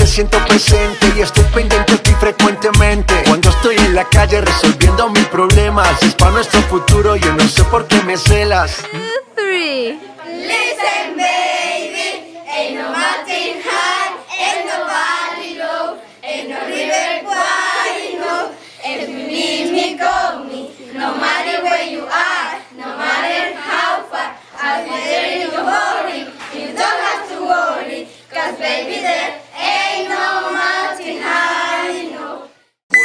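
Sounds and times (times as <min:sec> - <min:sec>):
girls singing in unison: 0:10.1 - 0:32.6.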